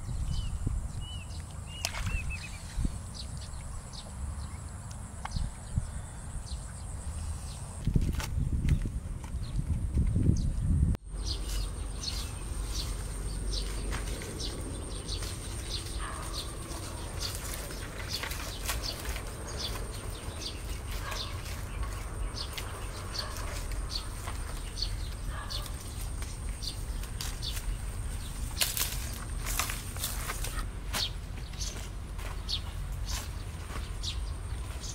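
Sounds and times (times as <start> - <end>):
small birds chirping: 0.0 - 7.8, 8.4 - 34.9
steady low rumble: 0.0 - 34.9
rustling footsteps: 11.2 - 34.9.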